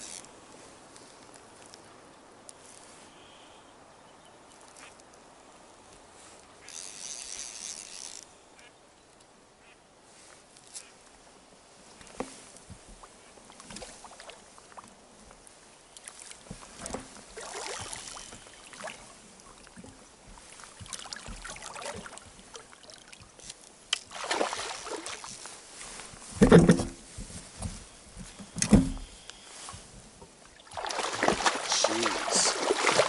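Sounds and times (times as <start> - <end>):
water lapping against inflatable boat: 12.8 - 15.0, 15.6 - 23.4, 24.0 - 26.4, 29.6 - 33.0.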